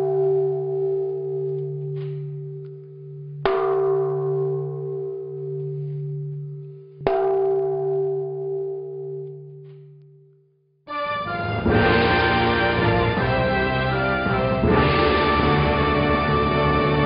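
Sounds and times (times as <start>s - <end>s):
large temple bell ringing: 0.0s - 9.6s, 11.6s - 17.0s.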